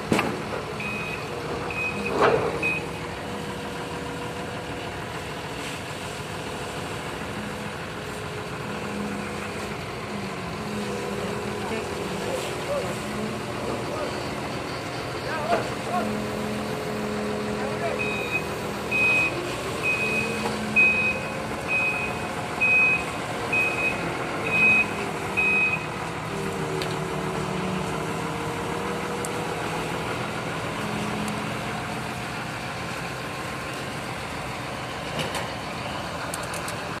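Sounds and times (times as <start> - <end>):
reversing alarm beeping: 0.8 - 3.0, 17.2 - 26.0.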